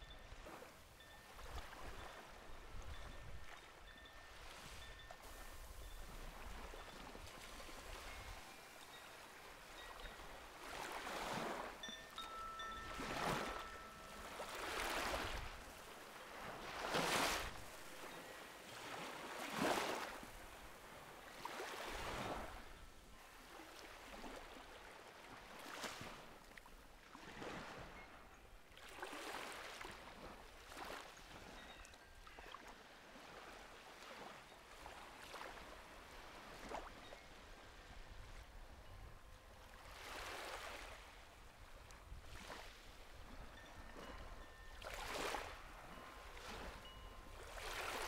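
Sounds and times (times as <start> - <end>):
waves lapping on sandy beach: 0.0 - 48.0.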